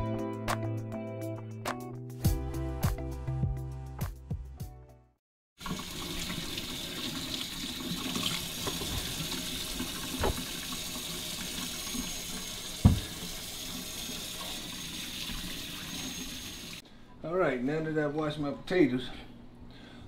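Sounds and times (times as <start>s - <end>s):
tap running into a sink: 8.0s - 13.4s
knocks: 12.8s - 13.1s.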